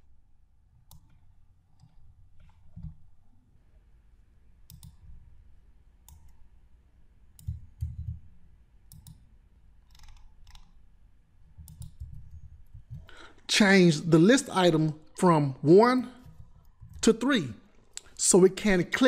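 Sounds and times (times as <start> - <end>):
computer mouse clicking: 0.8 - 3.2, 4.6 - 5.2, 6.0 - 6.5, 7.3 - 10.8, 11.5 - 13.1, 16.2 - 17.1.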